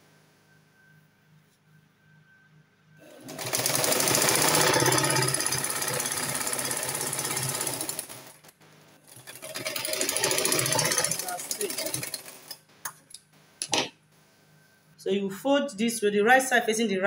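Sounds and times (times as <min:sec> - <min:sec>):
sewing machine stitching: 0:03.0 - 0:08.5, 0:09.1 - 0:12.6.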